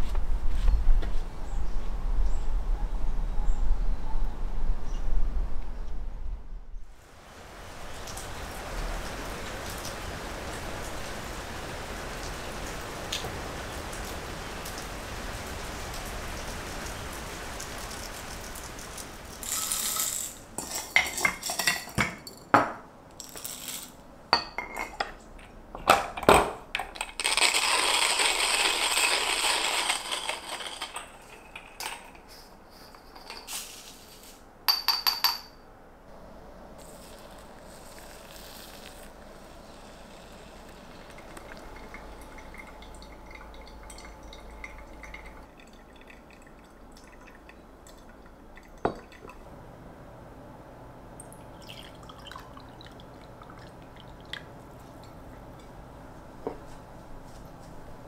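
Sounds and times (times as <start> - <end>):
rain hiss: 6.9 - 22.0, 27.0 - 34.5, 36.1 - 58.0
coffee beans clinking and rattling: 17.6 - 22.6, 23.2 - 25.1, 26.8 - 35.5, 36.8 - 46.4
hand coffee grinder grinding: 27.0 - 31.8, 36.8 - 41.4.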